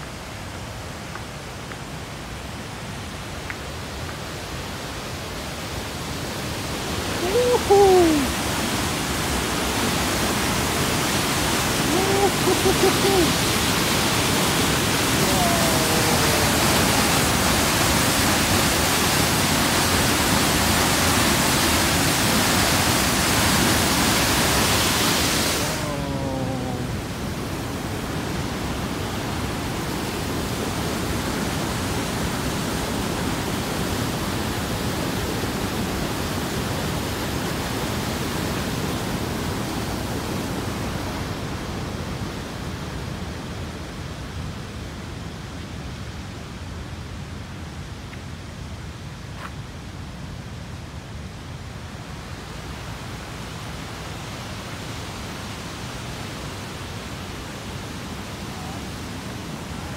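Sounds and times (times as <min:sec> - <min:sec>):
waterfall rushing: 0:00.0 - 0:43.3
river rushing through gorge: 0:00.0 - 0:59.9.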